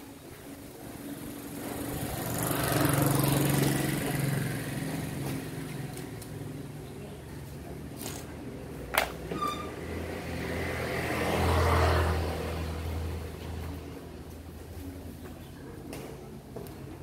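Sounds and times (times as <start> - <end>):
motorbike engine passing by: 1.2 - 6.9, 9.4 - 13.4.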